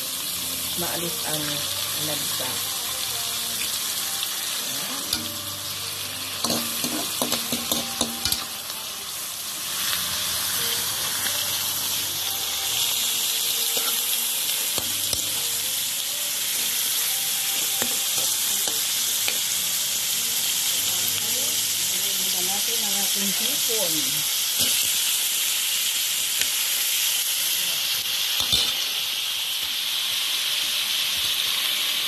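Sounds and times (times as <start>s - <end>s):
fish sizzling in hot oil: 0.0s - 32.0s.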